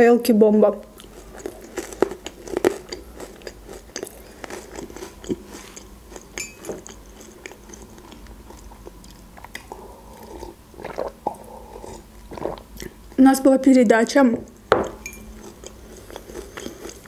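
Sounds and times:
chewing with wet clicks and crunches: 1.0s - 13.0s, 14.9s - 17.0s.

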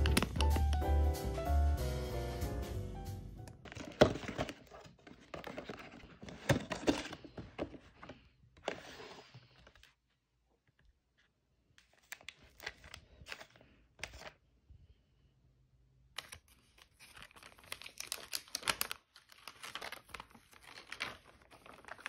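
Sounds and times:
paperboard rustling and crinkling: 3.6s - 10.1s, 11.1s - 14.4s, 16.2s - 22.0s.

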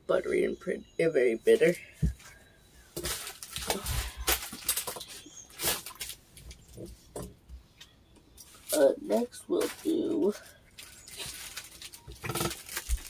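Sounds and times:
plastic bags rustling and crinkling: 1.5s - 7.0s, 8.4s - 13.0s.

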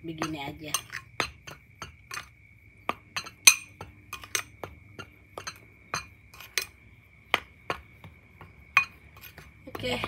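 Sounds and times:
spoon stirring flour in bowl: 0.2s - 6.8s
spoon clinking against glass: 3.2s - 4.5s.

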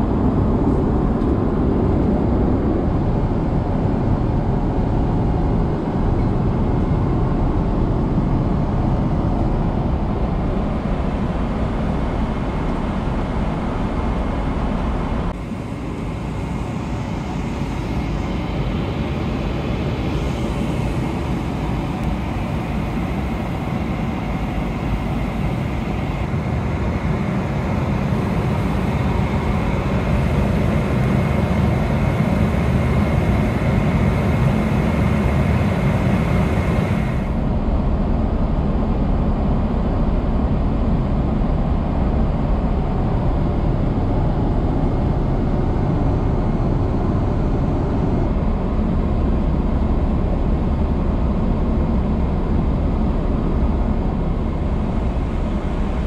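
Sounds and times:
airliner cabin engine rush: 0.0s - 56.0s.

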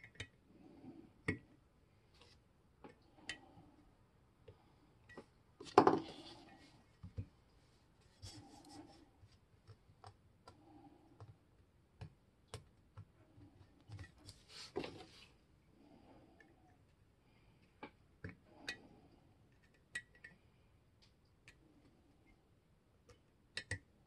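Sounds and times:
soft rubbing on cloth: 6.1s - 9.4s, 14.2s - 15.4s.

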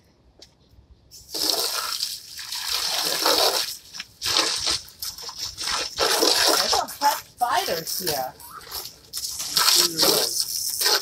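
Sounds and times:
garden hose spraying water: 1.2s - 11.0s
water splashing on ground and chairs: 1.3s - 11.0s.

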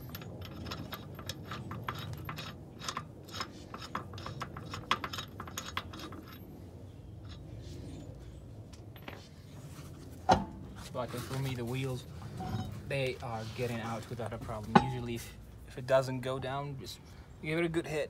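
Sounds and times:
metal lug nuts clicking: 0.0s - 8.2s.

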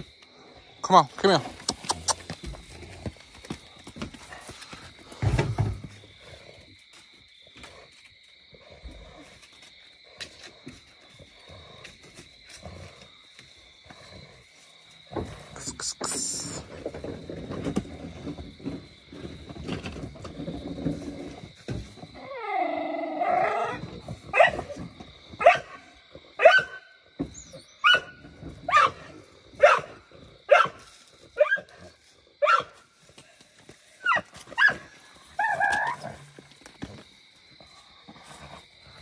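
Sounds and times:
dog barking: 24.3s - 24.8s, 25.4s - 25.8s, 26.4s - 26.9s, 27.8s - 30.8s, 31.4s - 31.7s, 32.4s - 32.8s.

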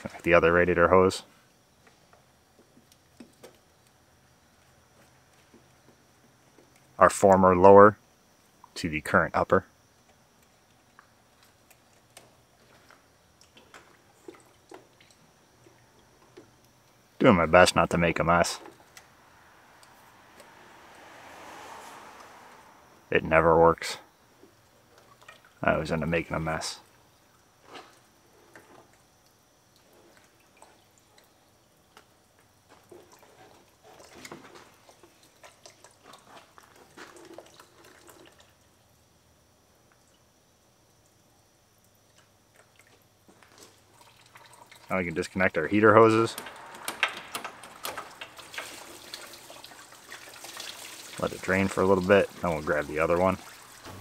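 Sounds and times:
coolant dripping: 9.9s - 54.0s
wet squishes of rubber hose: 10.5s - 17.0s, 27.6s - 38.6s, 46.2s - 54.0s.

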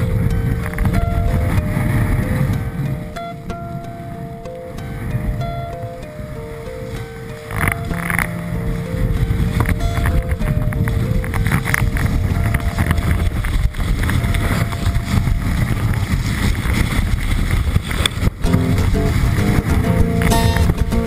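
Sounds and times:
held music notes: 0.0s - 16.1s, 18.3s - 21.0s
wind rushing over microphone: 0.0s - 21.0s
skis running on snow: 6.6s - 21.0s.

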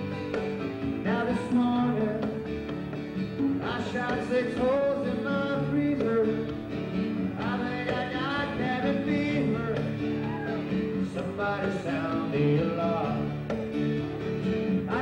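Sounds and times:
country-rock band playing: 0.0s - 15.0s
man singing into a microphone: 1.0s - 2.5s, 3.6s - 6.6s, 7.3s - 13.5s, 14.8s - 15.0s.

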